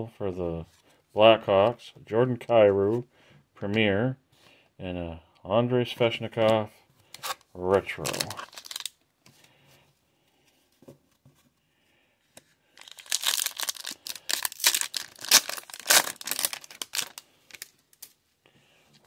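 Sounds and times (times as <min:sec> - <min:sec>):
foil wrapper tearing and crinkling: 0:08.0 - 0:08.9, 0:12.8 - 0:18.1.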